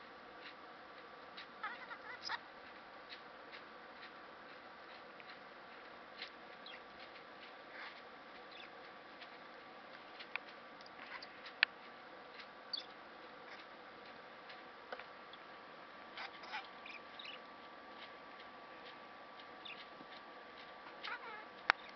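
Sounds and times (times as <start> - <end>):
faint steady hum: 0.0 - 21.9
budgerigar clicks and chirps: 1.4 - 2.4, 6.2 - 7.2, 8.4 - 8.8, 12.4 - 13.7, 16.2 - 17.5, 18.4 - 21.9.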